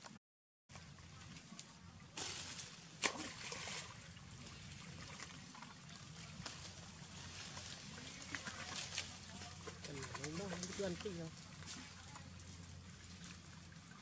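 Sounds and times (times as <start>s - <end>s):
water splashing and sloshing: 0.7s - 14.0s
sharp slap on water: 3.0s - 3.8s.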